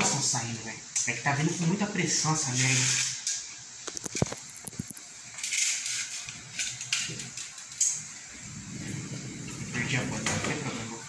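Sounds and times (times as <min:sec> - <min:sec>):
short hiss: 0:02.5 - 0:03.4.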